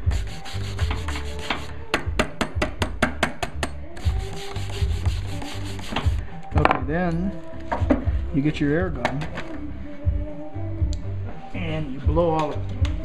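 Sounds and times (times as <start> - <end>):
wire brush scrubbing stone: 0.1 - 1.7, 4.0 - 6.2.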